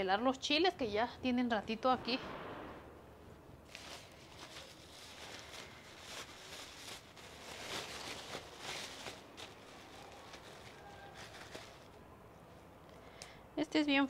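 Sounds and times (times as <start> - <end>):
plastic bag crinkling: 3.6 - 12.0.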